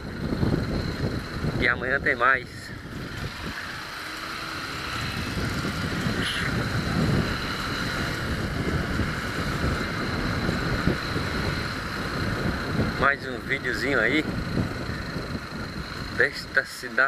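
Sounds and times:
wind noise on microphone: 0.0 - 16.6
motorcycle engine running: 0.0 - 17.0.

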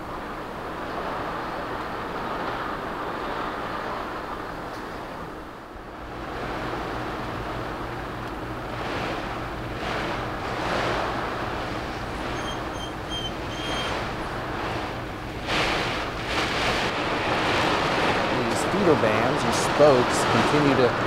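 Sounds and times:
heavy rain: 0.0 - 21.0
storm wind: 0.0 - 21.0
faint high peeps: 12.4 - 13.9.

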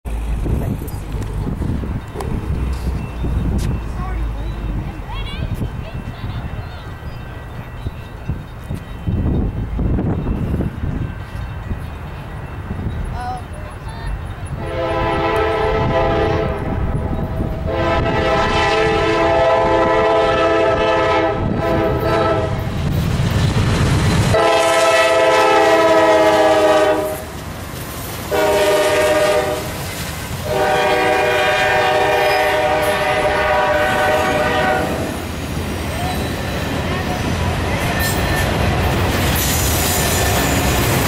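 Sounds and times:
train rumble: 0.0 - 41.0
locomotive air horn blasts: 14.6 - 22.8, 24.3 - 27.3, 28.3 - 29.8, 30.4 - 35.2.

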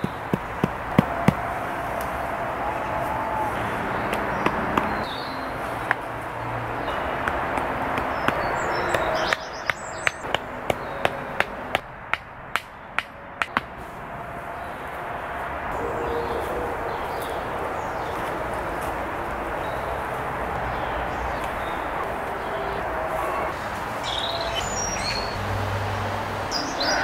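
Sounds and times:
hammer knocking wooden stakes: 0.0 - 2.1, 4.0 - 5.1, 6.8 - 13.9.

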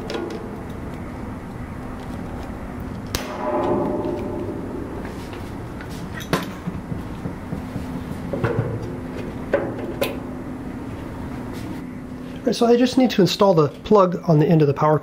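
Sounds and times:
metallic ring: 3.2 - 6.8.

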